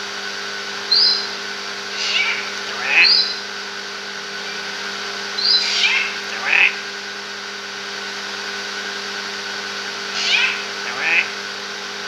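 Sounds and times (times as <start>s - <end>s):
steady hum: 0.0s - 12.0s
bird calling: 0.9s - 3.6s, 4.4s - 6.9s, 10.1s - 11.4s.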